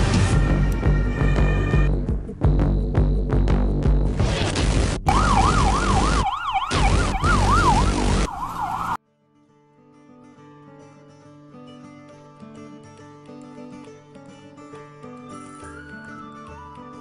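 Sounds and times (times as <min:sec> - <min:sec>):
emergency vehicle siren wavering: 0:05.1 - 0:09.0, 0:15.2 - 0:17.0
soft music: 0:09.8 - 0:17.0.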